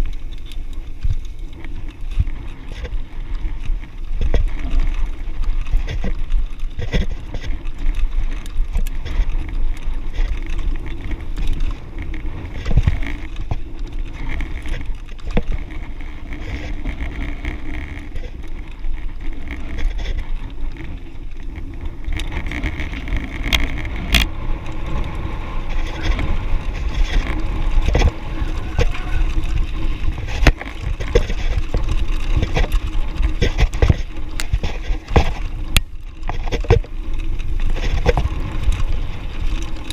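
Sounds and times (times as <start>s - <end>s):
bike rattling over bumps: 0.0s - 39.9s
tyres crunching on gravel: 0.0s - 39.9s
wind rumble on microphone: 0.0s - 39.9s.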